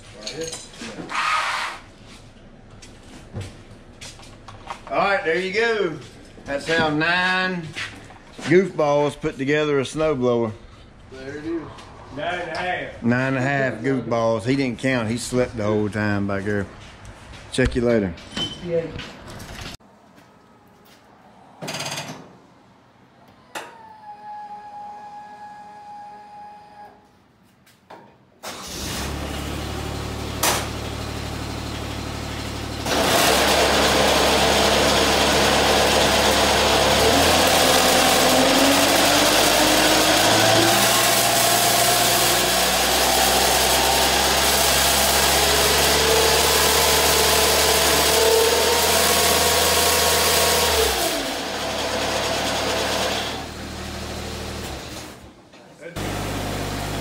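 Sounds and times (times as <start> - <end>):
mower engine running: 28.5 - 55.2, 56.0 - 57.0
snow blower whirring and whining: 32.8 - 55.2, 56.0 - 57.0.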